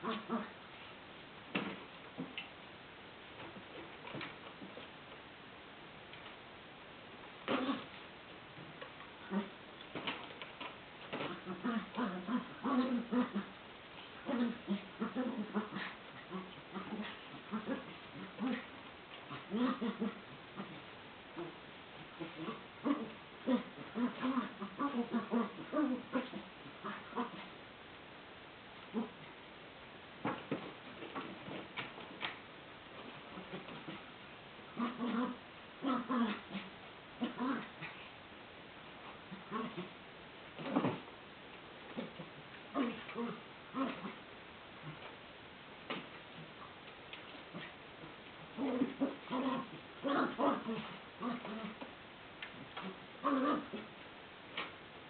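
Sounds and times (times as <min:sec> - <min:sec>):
animals growling and yipping: 0:07.4 - 0:08.0, 0:09.2 - 0:13.6, 0:14.2 - 0:27.6, 0:33.0 - 0:34.1, 0:34.7 - 0:38.1, 0:39.2 - 0:40.0, 0:40.6 - 0:41.1, 0:41.9 - 0:45.1, 0:47.3 - 0:51.9, 0:52.6 - 0:54.0.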